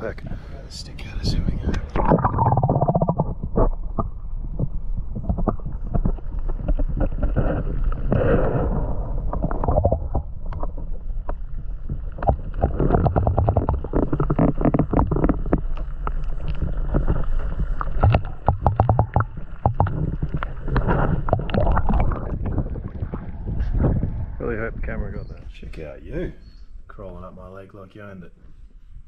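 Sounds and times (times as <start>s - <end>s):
muffled underwater stream churn: 1.3s - 25.8s
rapid underwater clicking: 1.7s - 24.4s.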